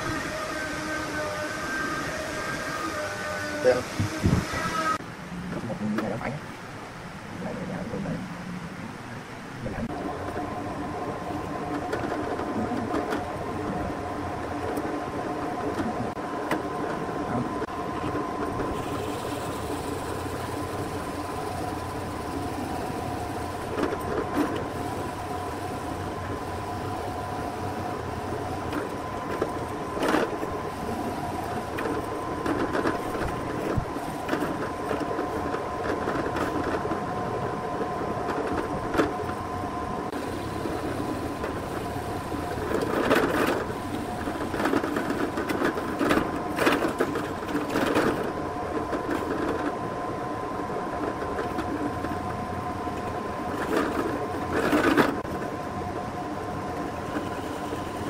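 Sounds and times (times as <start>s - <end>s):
drill bit cutting wood: 0.0s - 5.0s
drill press motor hum: 18.4s - 31.9s.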